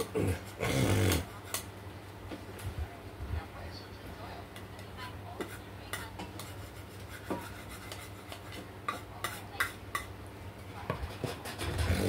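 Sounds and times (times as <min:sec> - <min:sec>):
cutlery clinking against a dish: 0:05.4 - 0:06.6, 0:07.2 - 0:10.1.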